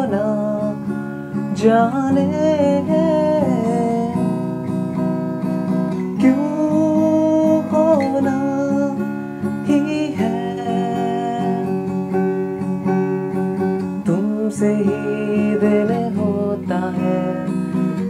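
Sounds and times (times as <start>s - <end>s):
man singing: 0.0s - 0.9s, 1.5s - 4.4s, 6.0s - 11.9s, 14.0s - 18.0s
acoustic guitar strumming: 0.0s - 18.0s.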